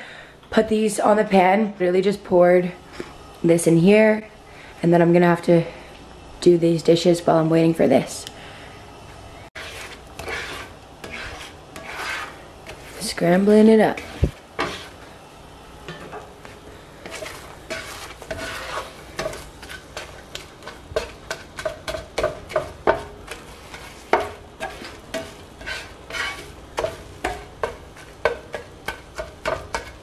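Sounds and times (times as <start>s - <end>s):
spatula scraping and tapping pan: 9.6s - 15.1s, 15.8s - 30.0s.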